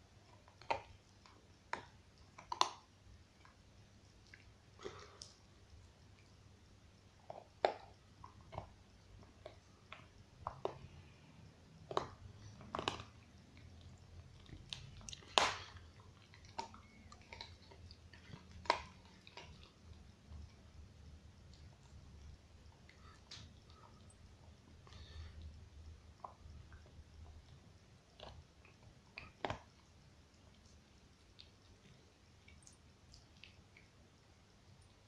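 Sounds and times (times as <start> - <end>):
dog gnawing on a bone: 0.2 - 3.6, 7.2 - 11.1, 11.8 - 20.8, 26.1 - 33.9.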